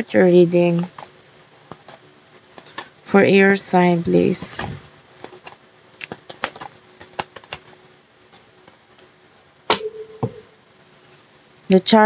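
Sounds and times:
cards clicking and tapping: 0.8s - 2.9s, 4.2s - 9.1s.

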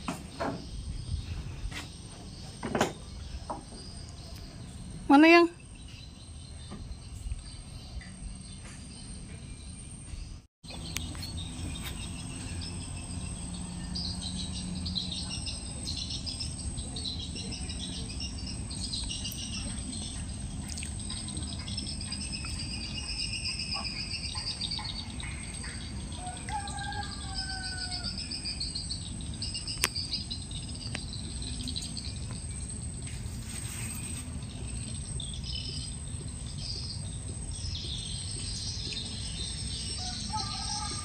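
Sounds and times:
birds chirping: 0.0s - 41.0s
low steady rumble: 10.2s - 23.0s
insects trilling: 10.7s - 41.0s.

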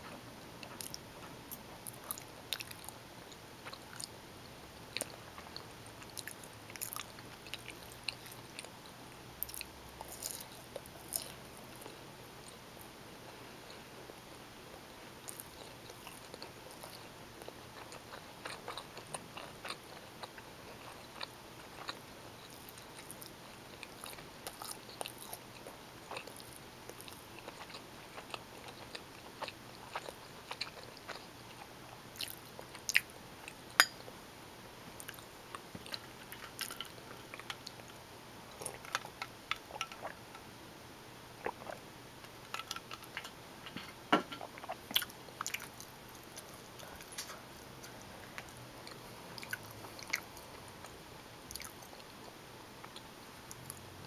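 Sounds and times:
close chewing with mouth clicks: 0.0s - 4.2s, 4.9s - 12.6s, 15.2s - 34.0s, 35.0s - 40.4s, 41.4s - 53.8s.

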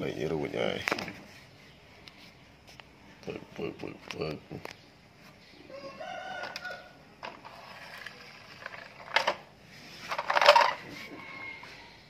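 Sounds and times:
rooster crowing: 5.7s - 7.1s, 10.8s - 12.0s
plastic toy trucks clacking: 7.2s - 10.9s.

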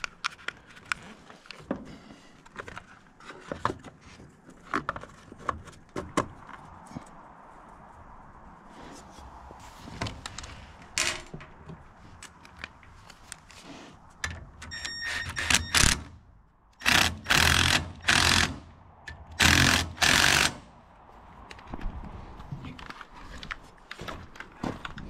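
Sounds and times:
impact driver whirring: 16.8s - 18.6s, 19.4s - 20.6s
impact driver hammering bursts: 16.8s - 18.7s, 19.4s - 20.7s.

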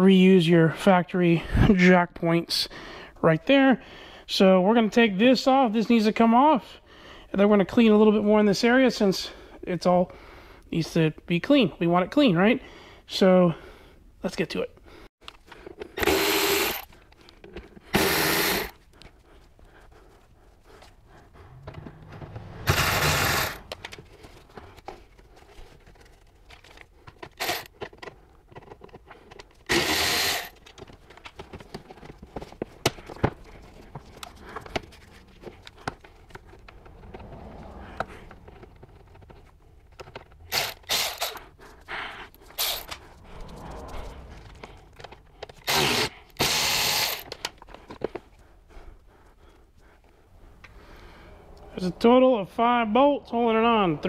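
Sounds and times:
electric ratchet running: 18.0s - 18.7s, 29.7s - 30.5s, 45.7s - 47.2s
plastic handling noises: 30.5s - 37.0s.

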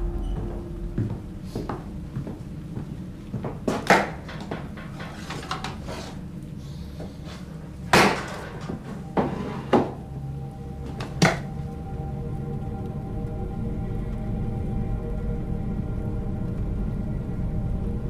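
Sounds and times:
low steady drone: 0.0s - 18.0s
knocks and bangs: 7.8s - 10.0s.

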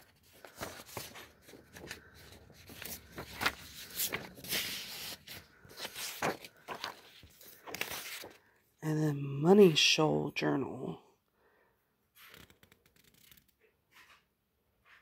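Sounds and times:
paper rustling: 0.0s - 8.6s.

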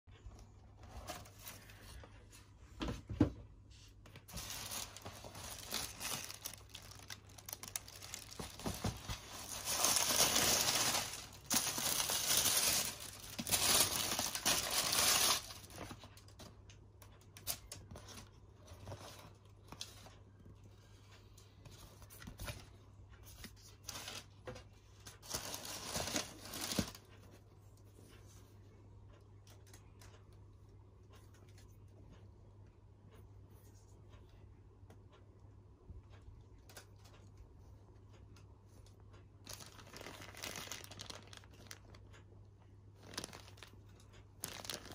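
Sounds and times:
paper and plastic rustling: 0.8s - 16.6s, 21.7s - 27.3s, 39.5s - 42.2s, 43.0s - 44.9s.

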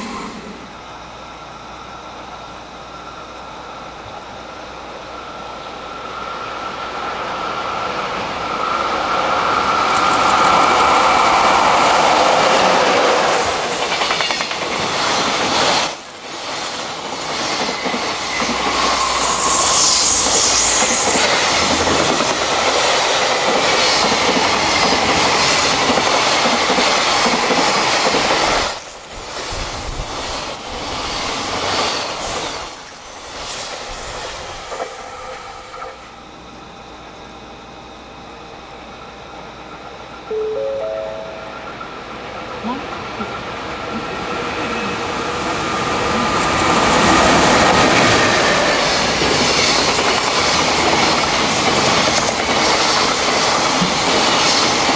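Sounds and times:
freight train passing: 0.0s - 54.9s.

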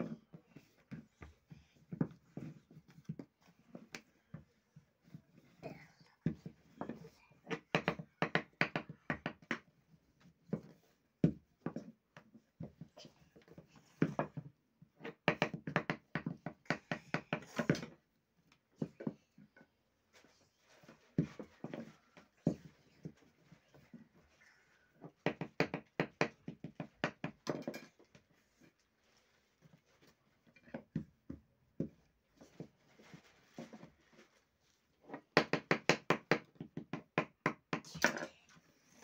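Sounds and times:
rolling pin knocking on wooden board: 6.3s - 9.6s, 15.0s - 18.0s, 25.2s - 27.9s, 35.3s - 37.8s.

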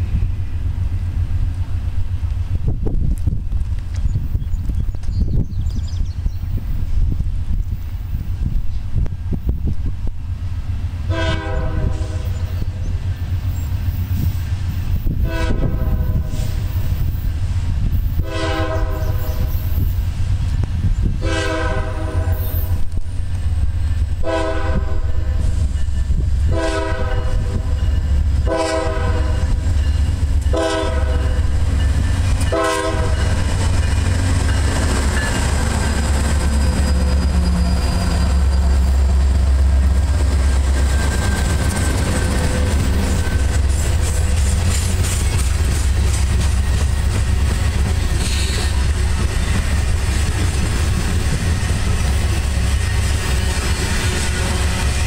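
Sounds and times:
diesel locomotive rumble: 0.0s - 55.0s
train rail noise: 0.0s - 55.0s
locomotive air horn blasts: 11.1s - 12.5s, 15.1s - 16.8s, 18.2s - 19.8s, 21.2s - 22.8s, 24.2s - 25.7s, 26.4s - 29.7s, 30.3s - 33.7s.

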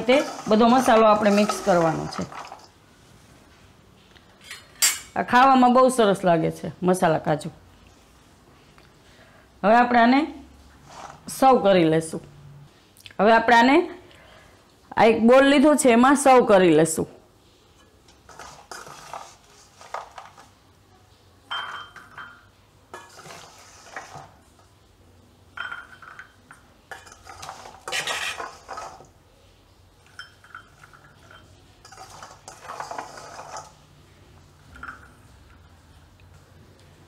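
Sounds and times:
metal spoon scraping bowl: 0.0s - 2.7s, 17.7s - 20.4s, 23.0s - 24.3s, 26.9s - 29.1s, 30.1s - 33.8s.

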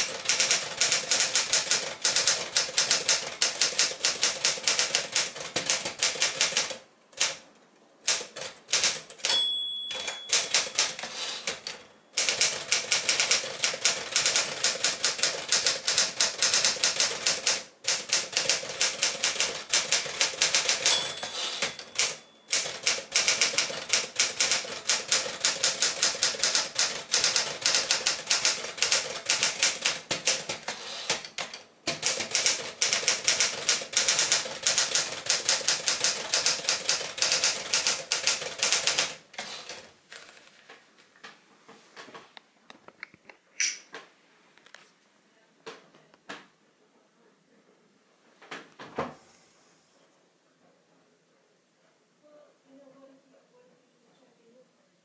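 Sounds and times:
typewriter typing clatter: 0.0s - 7.4s, 8.1s - 39.9s
typewriter margin bell ring: 8.8s - 13.4s, 18.0s - 29.8s.

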